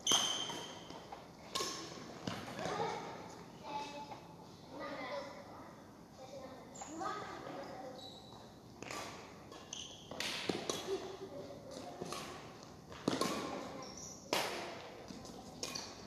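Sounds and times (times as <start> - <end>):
rackets hitting shuttlecock: 0.0 - 2.9, 8.8 - 16.0.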